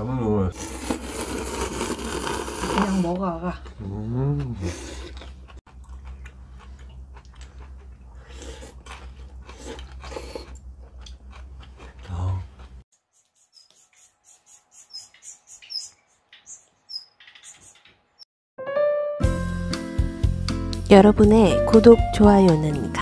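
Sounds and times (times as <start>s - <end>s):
people slurping noodles: 0.5s - 5.6s, 8.1s - 10.6s
short high bird chirps: 13.2s - 17.9s.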